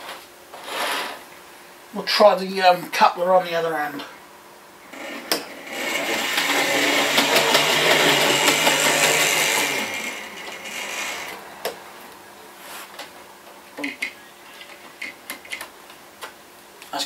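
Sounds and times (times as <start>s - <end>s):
model train motor whirring: 4.9s - 11.4s
wheels clicking on rails: 4.9s - 11.8s.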